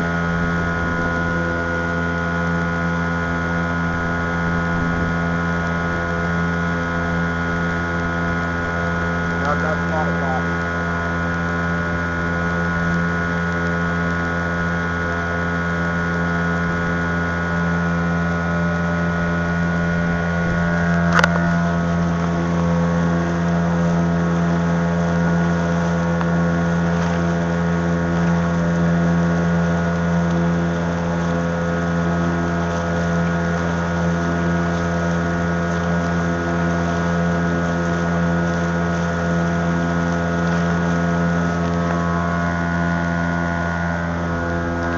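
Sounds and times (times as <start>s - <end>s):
boat engine humming: 0.0s - 44.9s
water and wind noise: 0.0s - 44.9s.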